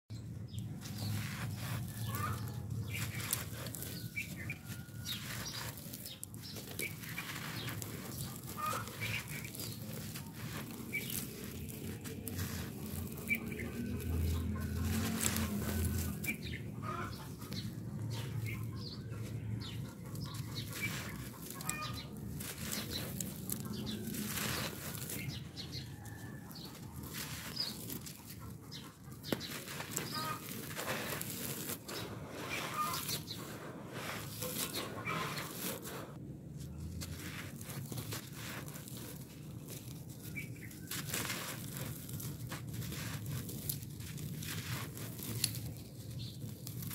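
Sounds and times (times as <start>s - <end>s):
dry soil crunching: 0.1s - 46.9s
bird calls: 0.2s - 36.1s
short bird calls: 0.9s - 5.7s, 6.7s - 9.8s, 19.7s - 22.9s, 31.9s - 33.7s.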